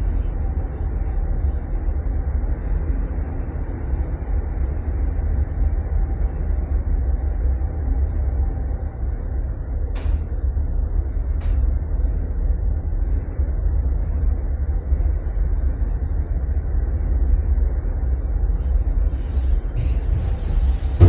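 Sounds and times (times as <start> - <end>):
cable car cabin rumble: 0.0 - 21.0.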